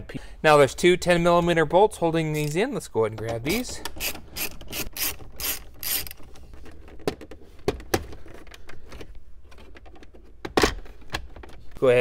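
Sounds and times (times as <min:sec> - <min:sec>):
ratchet wrench clicking: 0:04.0 - 0:06.2.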